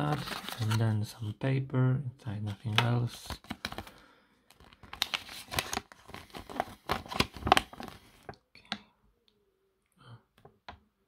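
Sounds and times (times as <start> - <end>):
paper rustling and crackling: 0.0 - 0.8, 4.5 - 8.2.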